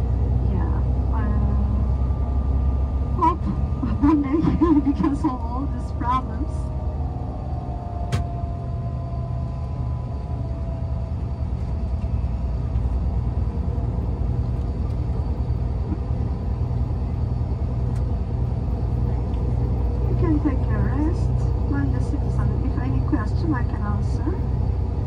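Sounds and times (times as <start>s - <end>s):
road noise: 0.0s - 25.0s
vehicle engine rumble from inside cabin: 0.0s - 25.0s.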